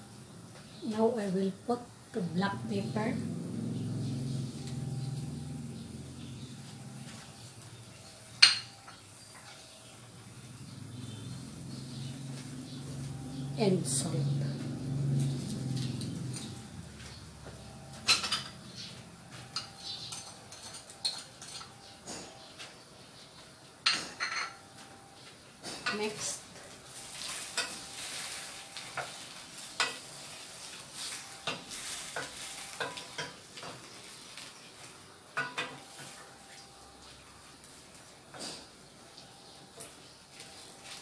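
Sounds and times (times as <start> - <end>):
shrimp sizzling in a pot: 25.8 - 41.0.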